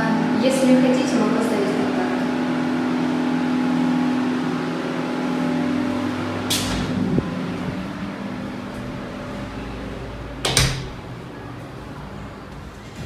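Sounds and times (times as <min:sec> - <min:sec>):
low mechanical hum: 0:00.0 - 0:13.0
door latch click: 0:10.4 - 0:11.0.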